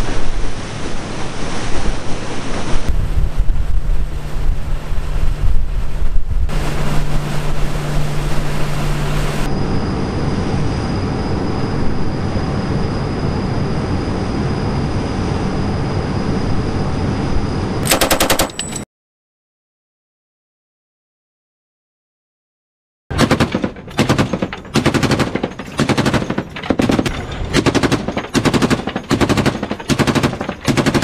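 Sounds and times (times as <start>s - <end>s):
wind buffeting microphone: 0.0s - 9.5s
rushing water of wake: 0.0s - 9.6s
boat engine hum: 0.4s - 17.7s, 23.1s - 31.0s.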